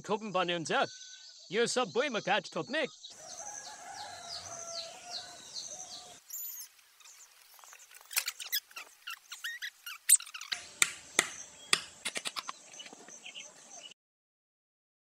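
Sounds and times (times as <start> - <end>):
hammer driving nails into wood: 10.5 - 12.4.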